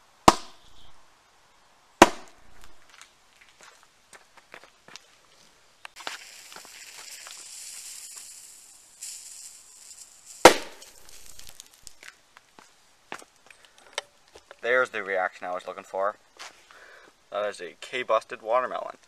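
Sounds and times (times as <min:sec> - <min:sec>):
firecracker fuse hissing: 0:05.9 - 0:12.1
firecracker bang: 0:06.0 - 0:12.0.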